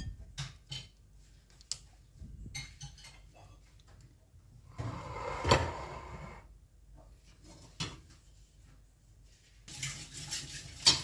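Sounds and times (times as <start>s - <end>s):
stone mortar scraping on countertop: 4.7s - 6.5s.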